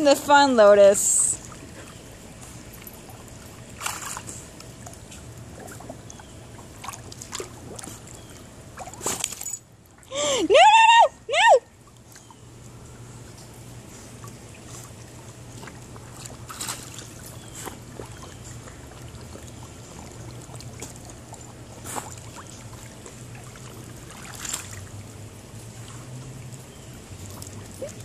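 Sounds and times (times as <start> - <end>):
water sloshing and trickling: 0.0 - 10.4, 11.6 - 28.0
steady low hum: 0.0 - 28.0
water splashes: 2.8 - 10.0, 14.1 - 28.0.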